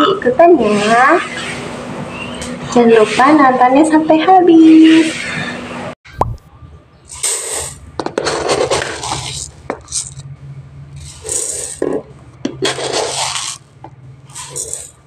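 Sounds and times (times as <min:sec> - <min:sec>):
rice grains pouring: 0:08.9 - 0:10.2, 0:11.0 - 0:11.8, 0:14.3 - 0:15.0.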